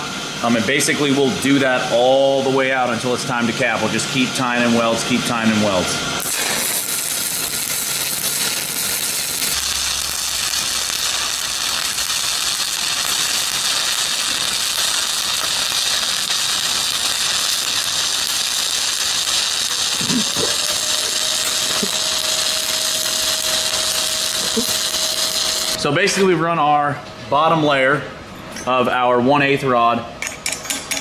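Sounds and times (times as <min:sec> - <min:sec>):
welding arc sizzling and crackling: 0:00.0 - 0:25.9.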